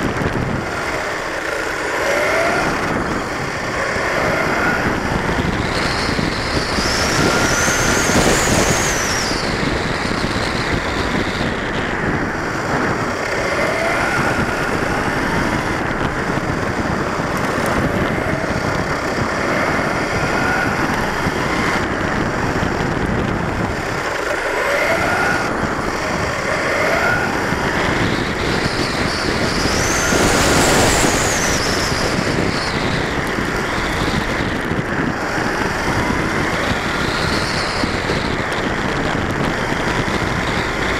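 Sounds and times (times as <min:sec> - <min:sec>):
electric motor and gears whining: 0:00.0 - 0:40.9
tyre noise on asphalt: 0:00.0 - 0:40.9.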